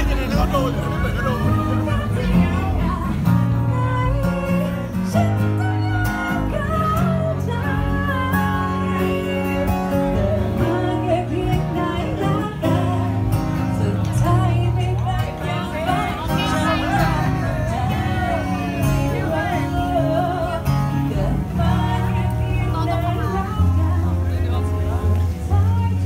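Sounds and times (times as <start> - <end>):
acoustic guitar strumming: 0.0 - 26.0
person singing: 0.4 - 26.0.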